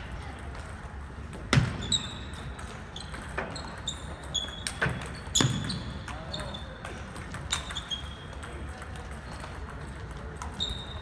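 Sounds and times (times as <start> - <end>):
sneakers squeaking on wooden floor: 1.5 - 6.9, 10.4 - 11.0.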